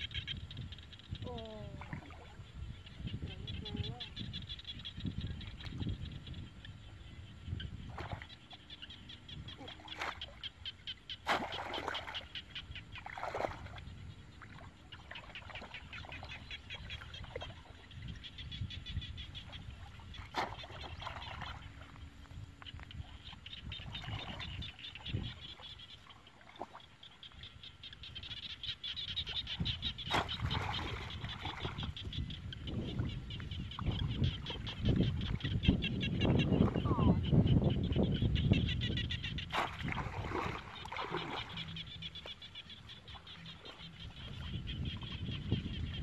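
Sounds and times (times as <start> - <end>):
frogs calling: 0.0 - 46.0
water splashing: 1.3 - 2.5, 9.5 - 10.5, 11.1 - 17.8, 19.4 - 22.0, 29.2 - 35.7, 39.3 - 46.0.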